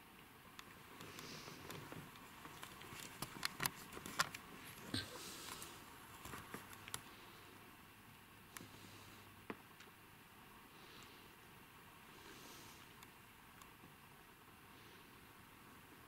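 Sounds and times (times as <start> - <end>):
soft rustling of movement: 0.6 - 7.6.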